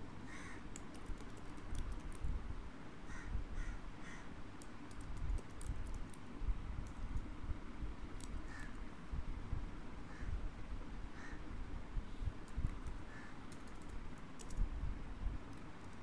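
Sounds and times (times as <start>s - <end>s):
keyboard typing: 0.7s - 2.2s, 4.6s - 7.3s, 12.4s - 14.6s.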